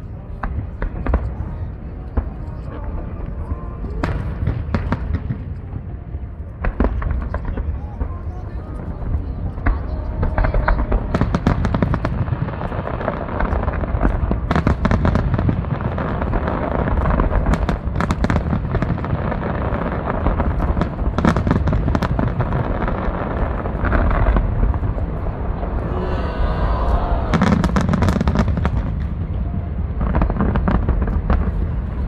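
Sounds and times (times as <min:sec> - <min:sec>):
sharp cracks and crackles: 0:06.5 - 0:25.3.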